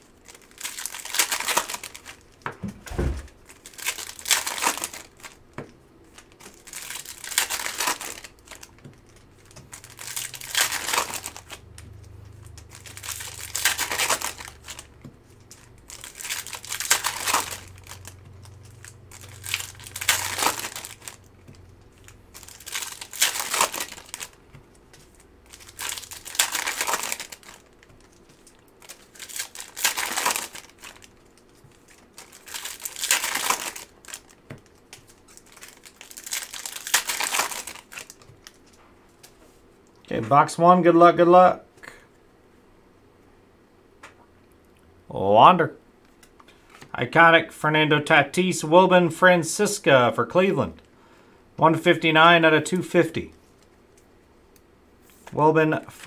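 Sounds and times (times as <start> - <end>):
foil wrappers crinkling and tearing: 0.0 - 2.4, 3.3 - 38.8.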